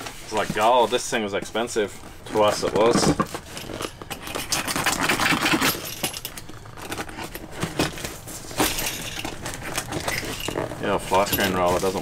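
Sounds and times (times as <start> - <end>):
knife slitting packing tape: 3.4 - 7.3.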